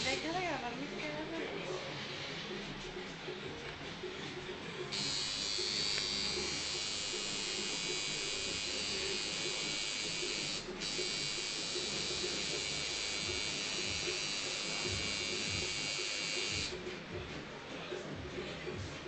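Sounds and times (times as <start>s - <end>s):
tattoo machine buzzing: 4.9s - 16.8s.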